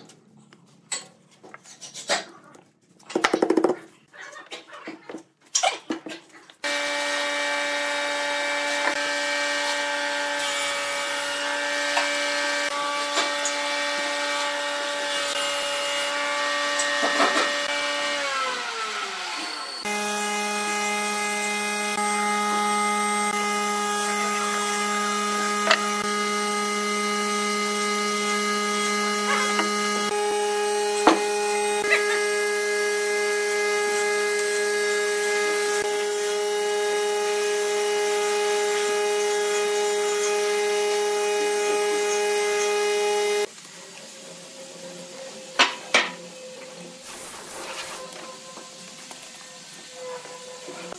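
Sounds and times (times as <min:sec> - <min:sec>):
electric motor whining: 0:16.6 - 0:43.5.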